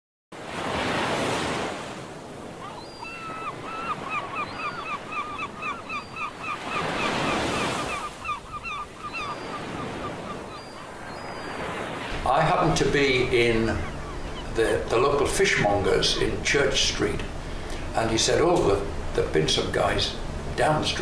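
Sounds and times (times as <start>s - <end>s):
sea waves breaking: 0.4s - 21.0s
gull calling: 2.6s - 16.3s.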